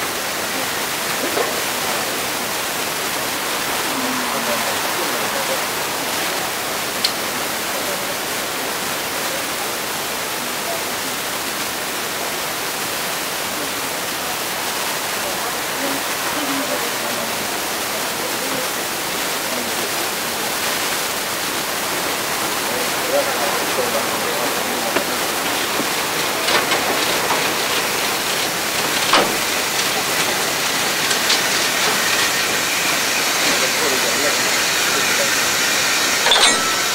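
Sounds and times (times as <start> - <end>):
steady hiss: 12.2 - 36.9
sharp click: 36.3 - 36.8.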